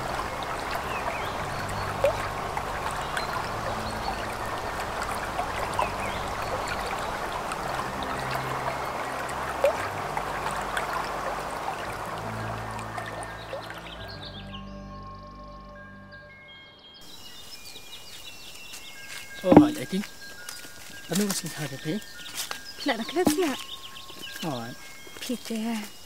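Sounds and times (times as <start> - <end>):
water plips: 0.0 - 13.9, 19.4 - 20.1
river water over stones: 0.0 - 14.2, 17.0 - 26.0.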